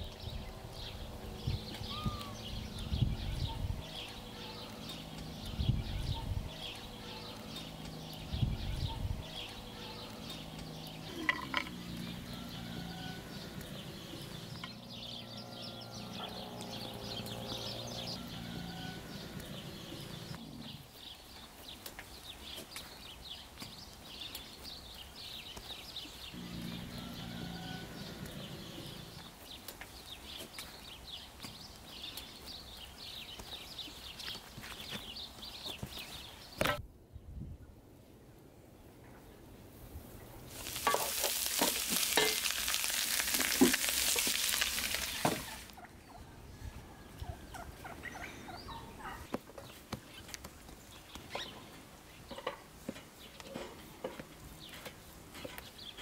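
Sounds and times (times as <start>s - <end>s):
farm animals calling: 0.0s - 21.0s, 26.1s - 30.6s, 40.5s - 49.4s
small birds chirping: 0.0s - 38.1s, 38.8s - 56.0s.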